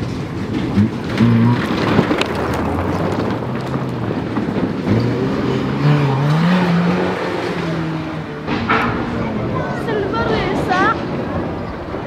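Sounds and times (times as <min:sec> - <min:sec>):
rally car engine accelerating: 0:00.0 - 0:09.8.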